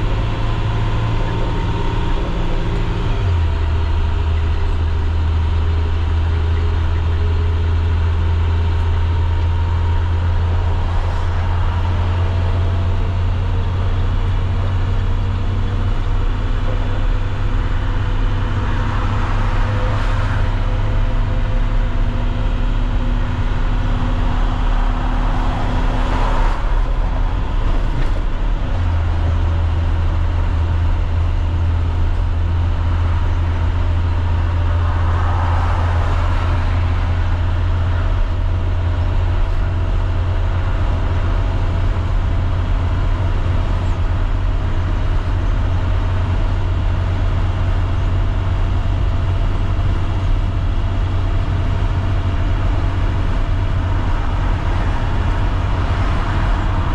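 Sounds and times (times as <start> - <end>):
diesel engine low drone: 0.0 - 56.9
tyre and road noise: 0.0 - 56.9
vehicle passing: 32.9 - 41.7.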